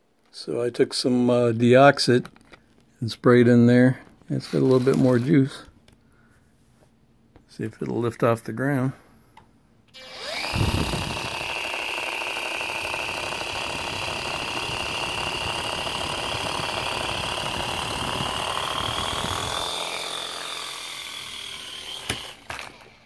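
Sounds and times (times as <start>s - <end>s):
toy helicopter motor whine: 9.9s - 23.0s.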